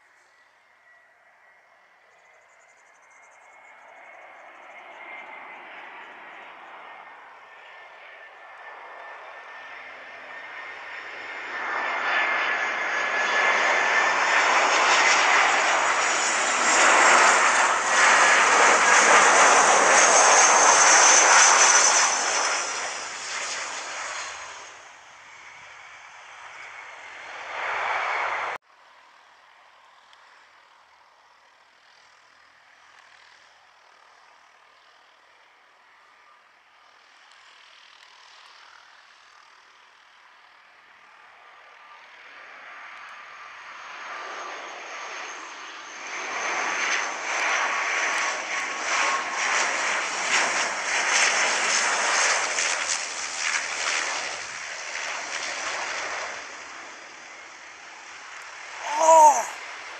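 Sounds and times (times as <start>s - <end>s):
turboprop plane approaching: 0.0s - 59.9s
high engine whine: 0.1s - 28.6s.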